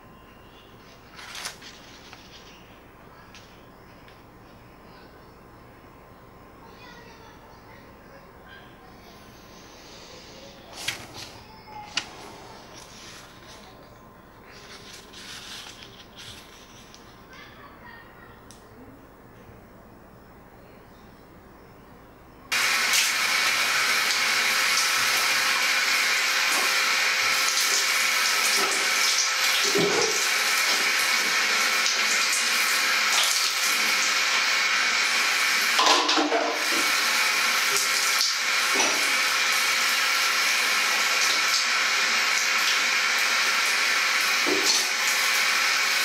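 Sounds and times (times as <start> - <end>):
shower spray running on tiles: 14.5 - 17.1, 22.5 - 46.0.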